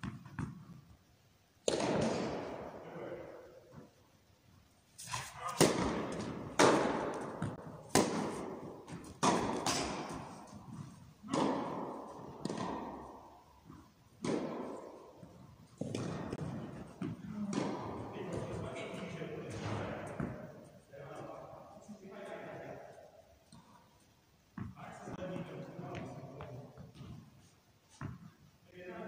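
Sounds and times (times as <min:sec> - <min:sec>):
racket striking tennis ball: 0:01.6 - 0:02.8, 0:05.0 - 0:18.5.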